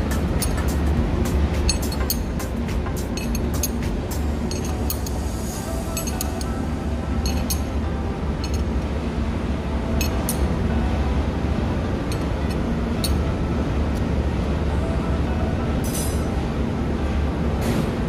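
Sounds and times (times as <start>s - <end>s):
low machinery rumble: 0.0s - 18.0s
spanner clinking on nuts: 0.1s - 0.8s, 1.6s - 5.2s, 5.9s - 6.6s, 7.2s - 7.8s, 8.4s - 8.8s, 10.0s - 10.5s, 12.1s - 13.3s.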